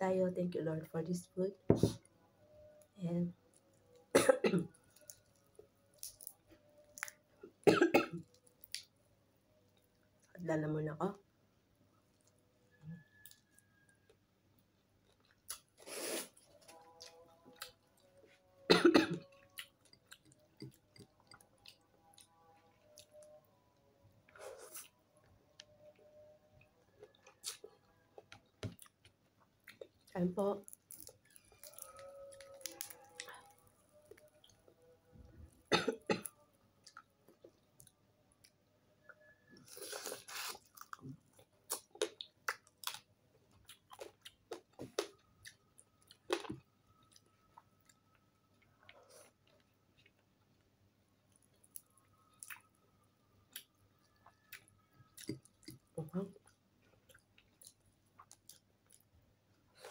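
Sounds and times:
person chewing crisp food: 14.7 - 18.5, 19.2 - 23.4, 27.0 - 34.6, 39.6 - 50.7, 51.3 - 59.9
close chewing: 14.8 - 18.6, 27.0 - 34.7, 53.5 - 59.1.

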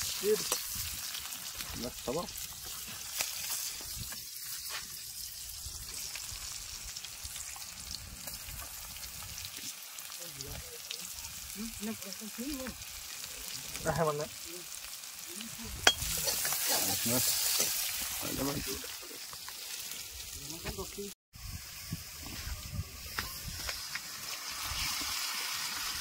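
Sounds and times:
food sizzling in a wok: 0.0 - 26.0.

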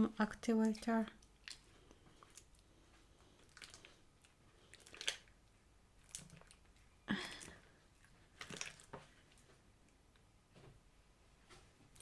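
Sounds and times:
slime squelching: 0.0 - 9.6.

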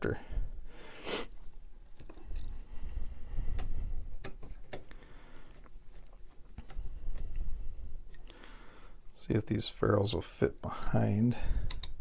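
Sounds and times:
wires rustling and rubbing: 1.4 - 8.3
light clicks and taps: 11.6 - 12.0.

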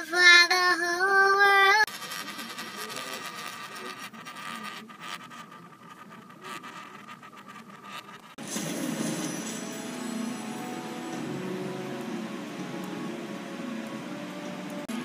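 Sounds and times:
ring spinning on tabletop: 1.8 - 9.4.

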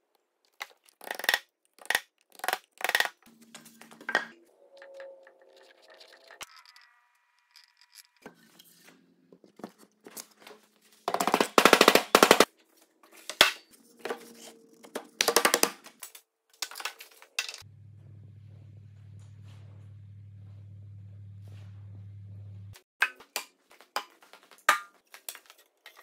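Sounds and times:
steady low hum: 17.7 - 22.8.

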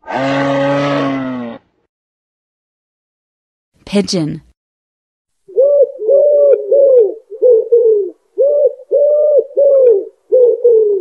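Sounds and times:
wood pigeon cooing: 5.5 - 11.0.

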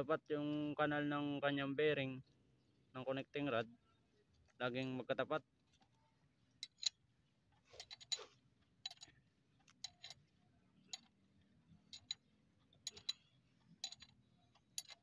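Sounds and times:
light metal clicks and clinks: 6.6 - 7.0, 7.8 - 15.0.

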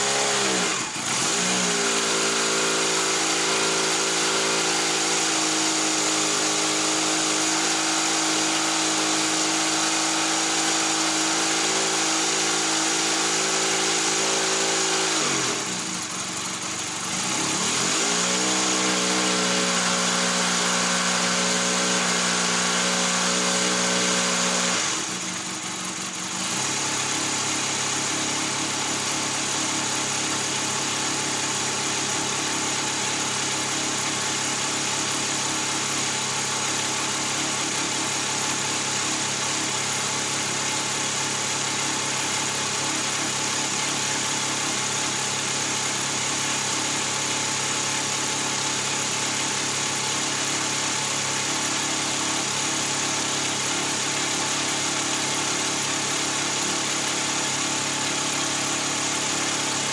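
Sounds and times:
motorcycle engine idling: 15.6 - 17.6, 25.0 - 59.9.

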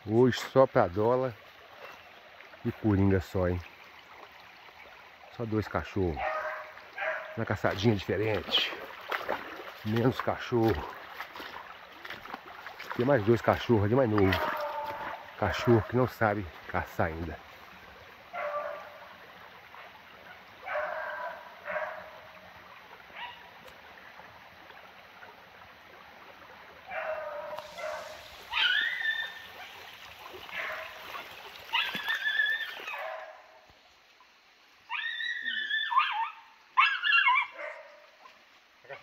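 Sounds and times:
hounds baying: 6.2 - 7.4, 14.3 - 16.0, 18.3 - 19.0, 20.3 - 22.2, 26.9 - 29.8, 30.5 - 33.5.

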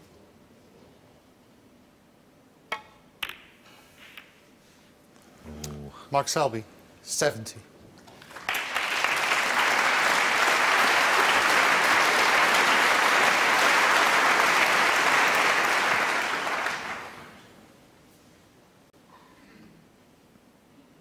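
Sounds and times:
audience clapping: 8.1 - 17.5.

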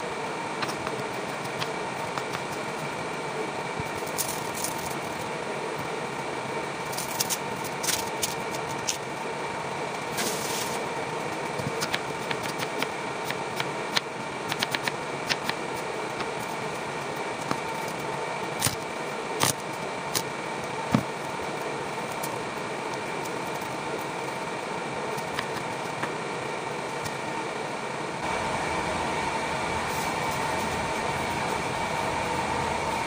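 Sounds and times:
steady room hum: 0.0 - 33.0.

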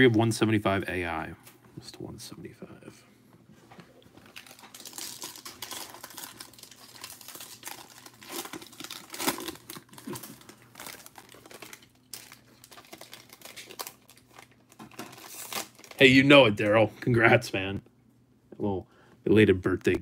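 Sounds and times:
foil wrapper crinkling and tearing: 4.2 - 16.2.

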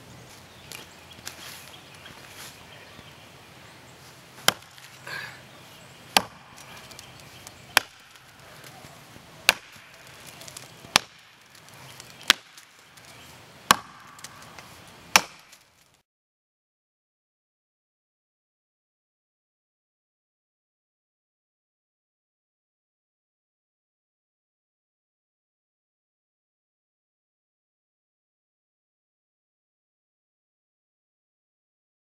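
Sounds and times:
axe chopping into wood: 4.4 - 5.0, 6.1 - 7.0, 7.7 - 8.3, 9.4 - 11.4, 12.2 - 12.7, 13.7 - 15.6.

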